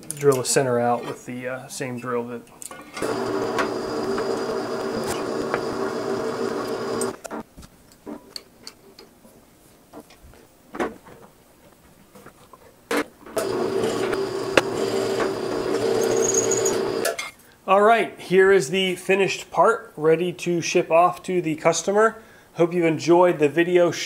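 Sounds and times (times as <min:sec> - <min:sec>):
drill press motor humming: 0:03.0 - 0:07.2, 0:13.4 - 0:17.1.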